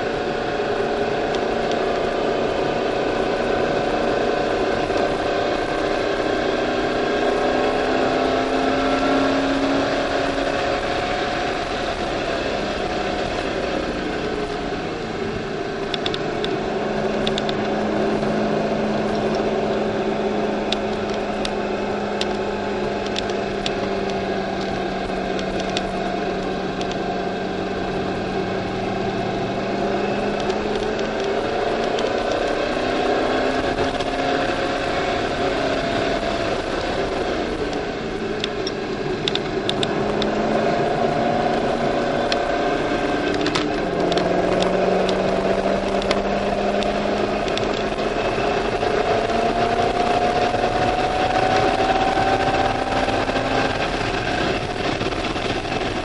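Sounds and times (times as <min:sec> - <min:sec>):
car engine at speed: 0:00.0 - 0:56.0.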